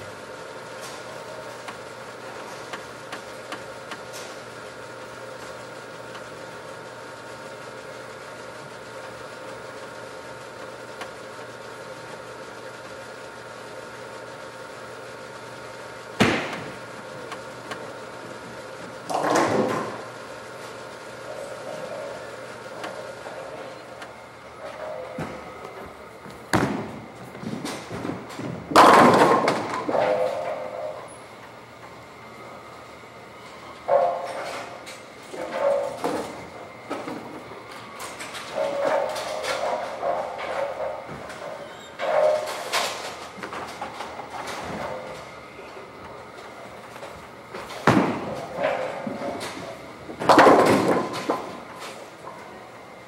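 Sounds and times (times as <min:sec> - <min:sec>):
ball return mechanical hum: 0:00.0 - 0:53.0
bowling balls and pins crashing: 0:16.2 - 0:16.9, 0:19.1 - 0:20.1, 0:26.4 - 0:30.9, 0:47.5 - 0:52.0.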